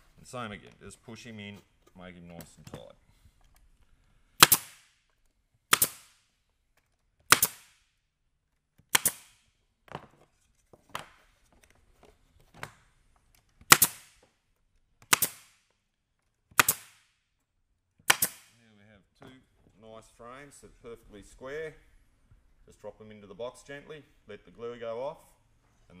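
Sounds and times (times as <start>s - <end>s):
staple gun firing: 4.4s - 4.8s, 5.7s - 6.1s, 7.3s - 7.7s, 8.9s - 9.4s, 13.7s - 14.1s, 15.1s - 15.5s, 16.6s - 17.0s, 18.1s - 18.5s.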